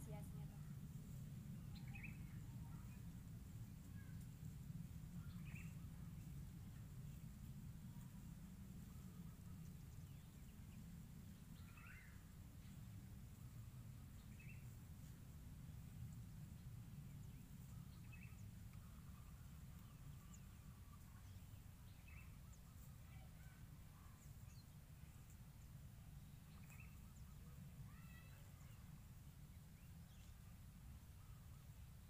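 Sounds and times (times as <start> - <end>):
low steady rumble: 0.0 - 32.0
faint bird chirps: 8.8 - 14.8, 16.1 - 29.0.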